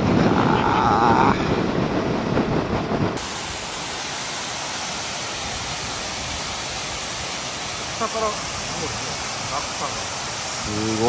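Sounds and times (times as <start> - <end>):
wind and motorcycle road noise: 0.0 - 3.2
waterfall rushing: 3.2 - 11.0.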